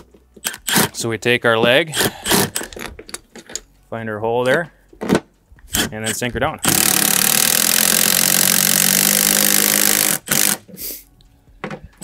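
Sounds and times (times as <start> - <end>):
power driver driving screw into wood: 0.4 - 1.0, 1.9 - 3.6, 5.0 - 10.7.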